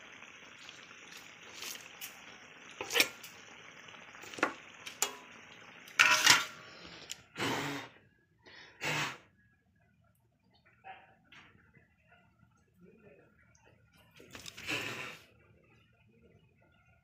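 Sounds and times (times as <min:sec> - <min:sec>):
cooking hiss: 0:00.0 - 0:08.0, 0:14.2 - 0:15.4
pots and utensils clattering: 0:02.8 - 0:03.4, 0:04.2 - 0:06.8.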